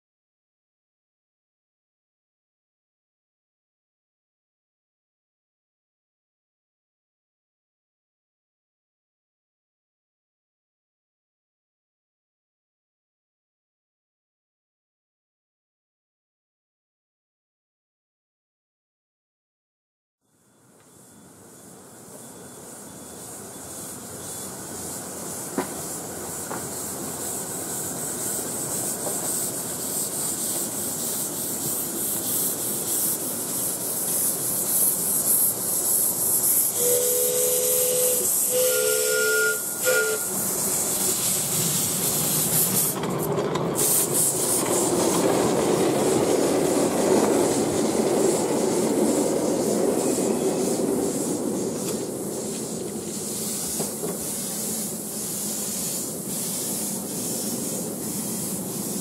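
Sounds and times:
carriages rumbling on rails: 20.5s - 59.0s
steam hissing: 20.9s - 59.0s
two-note steam whistle: 36.4s - 41.5s.

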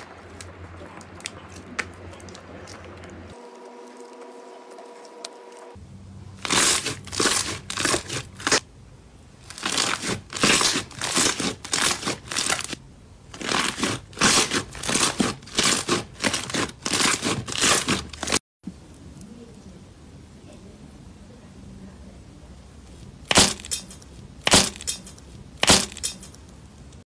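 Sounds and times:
slime squelching and popping: 0.0s - 4.9s.

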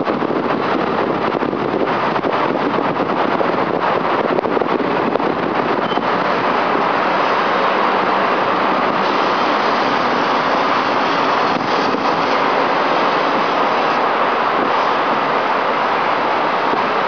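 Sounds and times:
city traffic roar: 0.0s - 17.0s.

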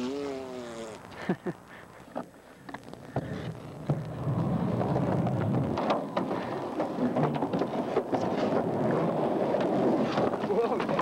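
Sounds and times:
skateboard wheels rolling on concrete: 2.6s - 11.0s.

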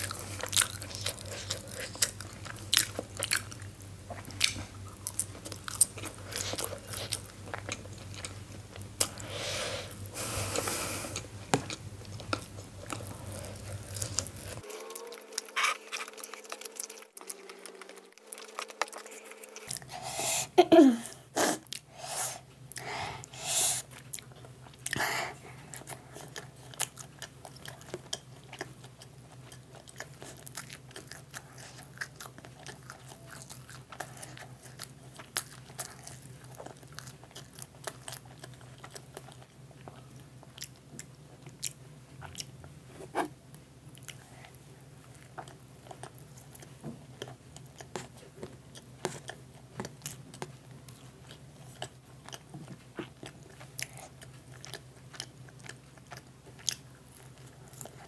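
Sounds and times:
wet chewing and biting: 11.2s - 19.9s, 44.0s - 58.0s.

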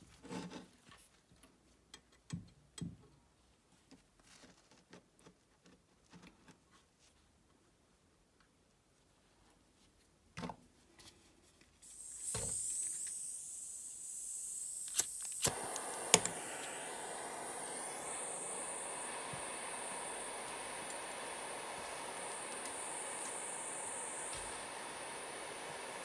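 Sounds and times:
gas hissing from nozzle: 11.8s - 26.0s
igniter clicks: 11.9s - 26.0s
rushing torch flame: 11.9s - 26.0s.

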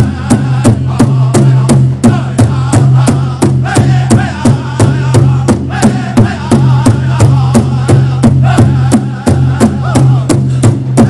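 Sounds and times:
big drum beating: 0.0s - 11.0s
singers chanting: 0.0s - 11.0s.

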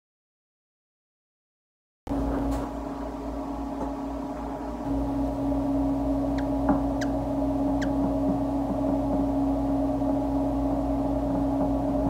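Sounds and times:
steady low hum: 2.1s - 12.0s.

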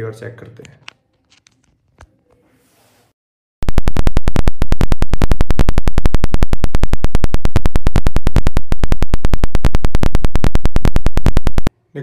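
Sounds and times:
rapid crackling buzz: 3.6s - 11.7s.

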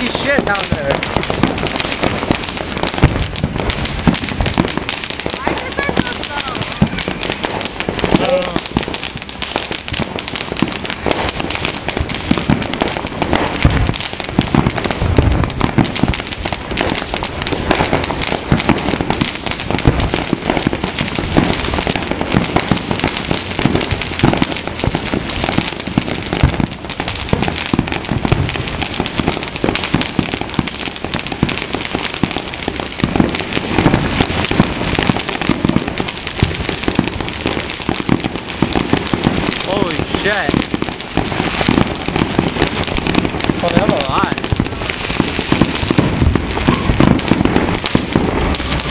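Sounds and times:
fireworks popping and banging: 0.0s - 48.9s.

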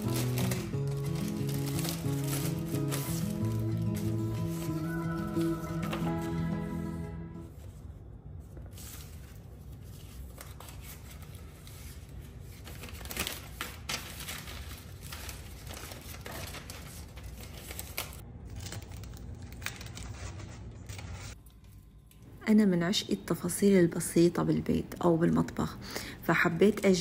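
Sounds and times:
packaging rustling and crinkling: 0.0s - 6.2s, 8.7s - 21.4s.

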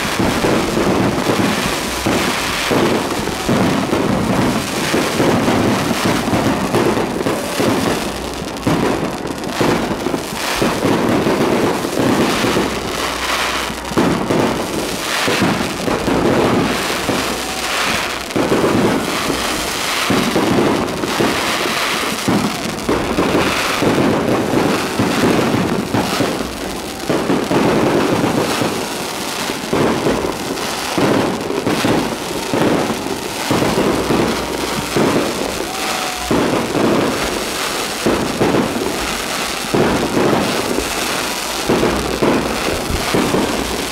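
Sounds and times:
fireworks bangs and crackles: 0.0s - 43.9s.

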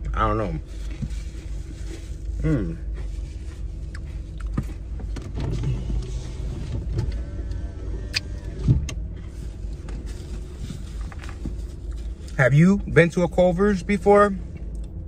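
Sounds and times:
low steady rumble: 0.0s - 15.0s
car seat creak: 4.8s - 11.8s.

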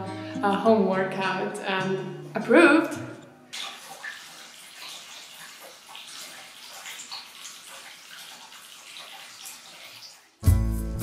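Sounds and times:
running water: 3.5s - 10.5s.

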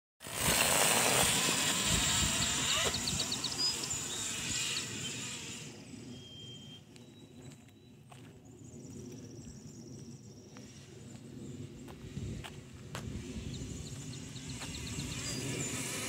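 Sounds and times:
knobby tyre noise: 0.2s - 7.0s, 10.6s - 16.0s
electric motorbike motor whine: 0.2s - 8.3s, 10.5s - 16.0s.

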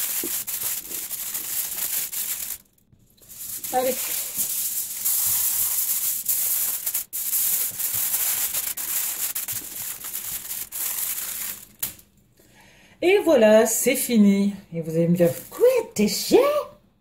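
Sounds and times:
aluminium foil crinkling: 0.0s - 12.1s, 15.2s - 15.8s.

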